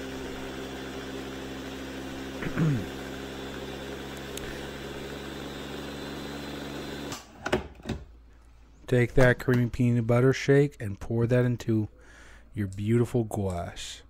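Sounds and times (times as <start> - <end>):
blender motor running: 0.0 - 7.3.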